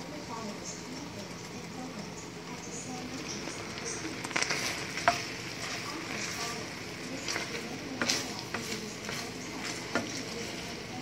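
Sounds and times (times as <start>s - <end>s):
sauce bubbling and sizzling: 2.2s - 11.0s.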